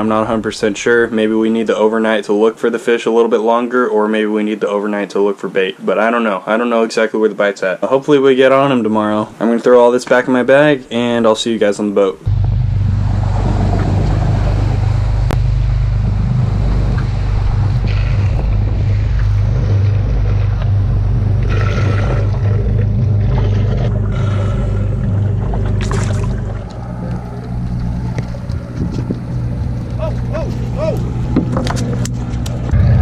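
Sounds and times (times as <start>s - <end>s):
boat engine droning: 0.0s - 2.3s, 10.5s - 33.0s
water rushing past hull: 8.8s - 32.0s.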